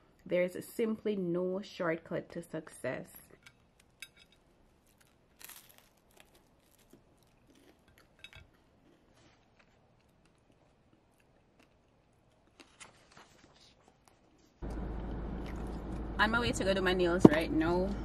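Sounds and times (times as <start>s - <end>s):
toast crunching and clinking on plate: 3.4s - 11.7s.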